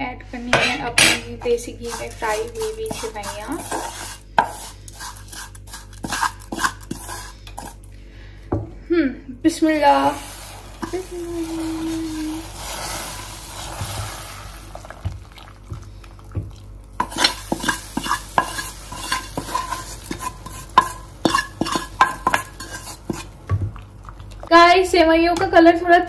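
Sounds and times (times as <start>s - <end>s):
spoon scraping against pan: 0.5s - 7.8s, 10.0s - 14.1s, 17.0s - 23.5s
food sizzling in a pan: 1.4s - 7.8s, 9.6s - 23.6s.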